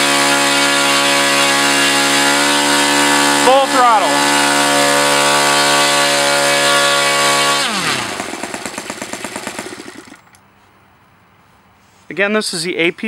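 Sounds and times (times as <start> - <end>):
model engine running then winding down: 0.0 - 10.4.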